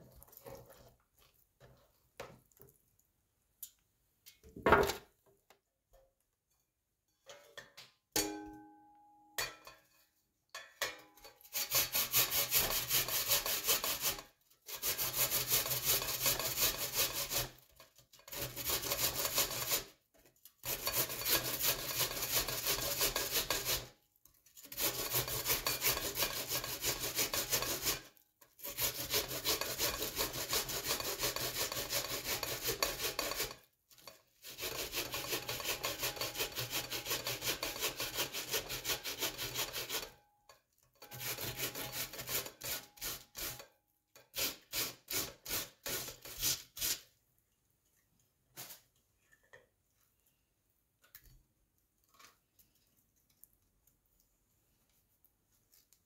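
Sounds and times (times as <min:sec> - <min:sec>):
onion rasping on grater: 0:11.4 - 0:20.0, 0:20.6 - 0:24.0, 0:24.6 - 0:40.2, 0:41.0 - 0:47.1.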